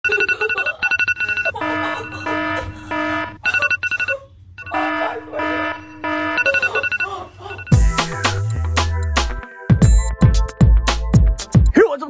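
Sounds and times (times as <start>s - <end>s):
rapid high electronic beeping: 0.0s - 7.0s
repeating ringtone tone: 0.0s - 8.0s, 9.8s - 10.2s.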